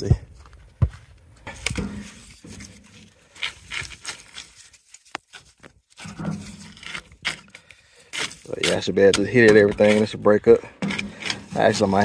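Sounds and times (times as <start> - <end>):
stick knocking burning coals: 6.0 - 12.0.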